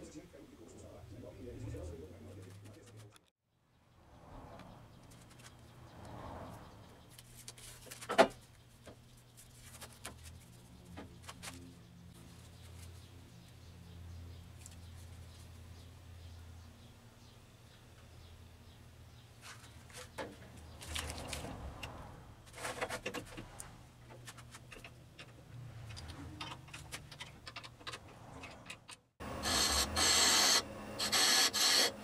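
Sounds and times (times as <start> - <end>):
wood lathe humming: 29.2 - 32.0.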